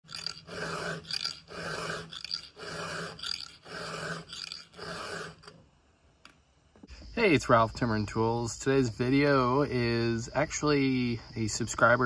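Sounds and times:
file rasping on saw chain: 0:00.0 - 0:05.6.

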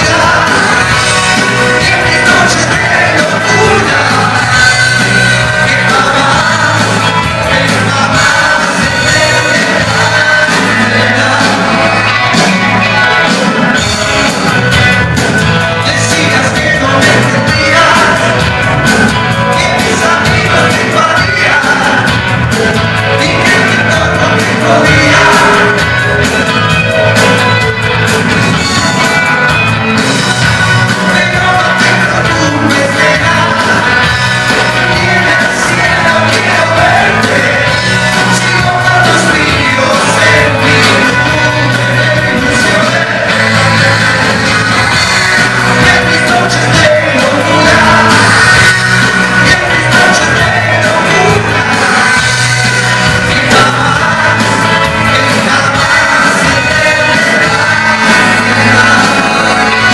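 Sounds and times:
lead singer singing: 0:00.0 - 0:59.9
live rock band playing: 0:00.0 - 0:59.9.

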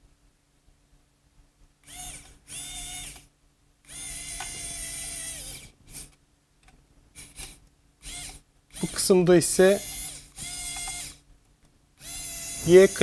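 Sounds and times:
electric screwdriver whining: 0:01.8 - 0:03.3, 0:03.9 - 0:06.1, 0:07.2 - 0:09.1, 0:09.7 - 0:11.2, 0:12.0 - 0:13.0.

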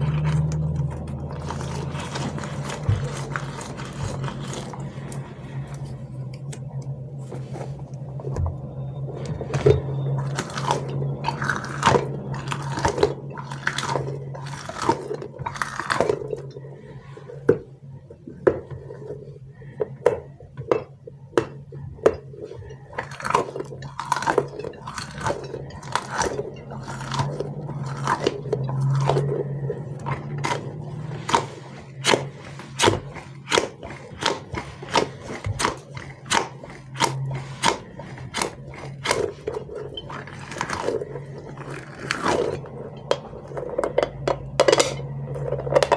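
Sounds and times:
squishy toys squelching and clicking: 0:00.0 - 0:07.0, 0:19.5 - 0:45.9
steady low hum: 0:00.0 - 0:45.9.

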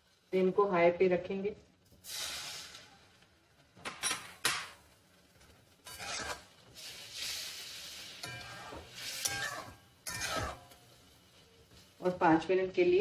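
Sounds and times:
sauce sizzling: 0:01.8 - 0:13.0
spatula scraping metal pan: 0:05.8 - 0:10.9.

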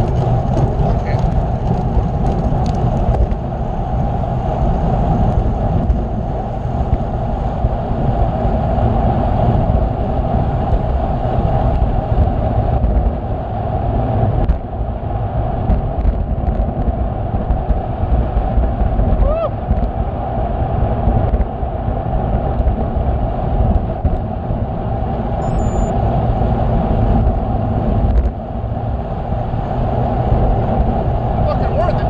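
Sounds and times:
wind buffeting microphone: 0:00.0 - 0:32.0.

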